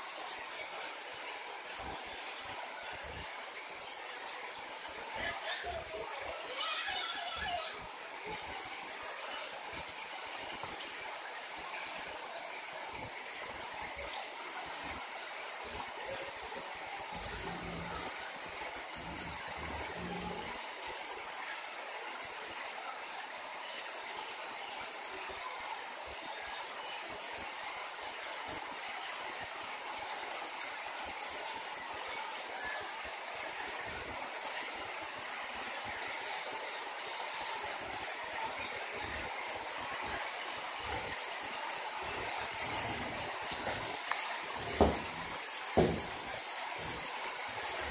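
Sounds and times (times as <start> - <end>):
heavy rain splashing on paving: 0.0 - 47.9.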